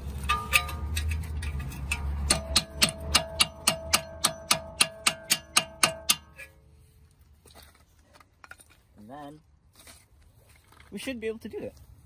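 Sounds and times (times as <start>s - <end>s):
hammer blows on metal: 1.8s - 6.6s.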